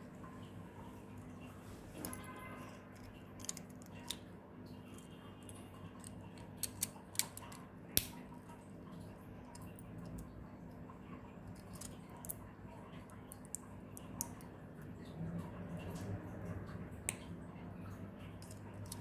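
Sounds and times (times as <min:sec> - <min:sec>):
plastic bricks clicking: 0:06.0 - 0:08.1.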